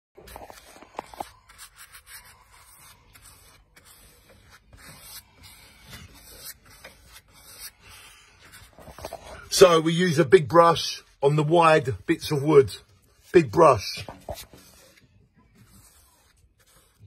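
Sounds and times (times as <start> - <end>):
paintbrush swishing on wood: 0.2 - 9.5, 13.0 - 17.0.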